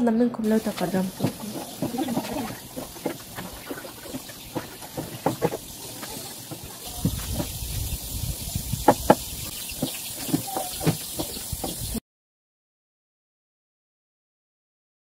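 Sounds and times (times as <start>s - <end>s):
steady hiss: 0.5s - 12.0s.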